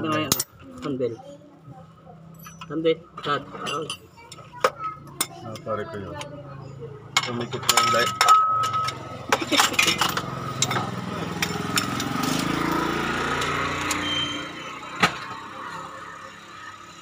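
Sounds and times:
pry bar clinking on metal: 2.3s - 2.8s, 7.2s - 12.1s.

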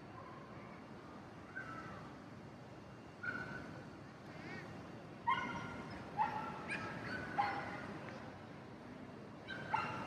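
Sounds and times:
dogs giving high barks and yips: 9.5s - 10.0s.

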